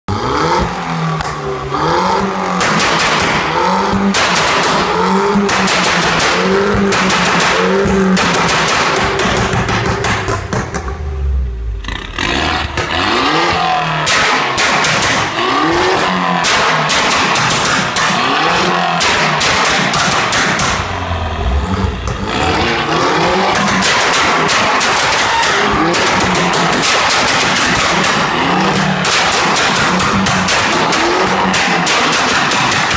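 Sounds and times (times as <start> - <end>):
car engine revving: 0.1 - 32.9
exhaust pops and bangs: 2.2 - 11.1, 14.0 - 21.0, 22.0 - 32.9.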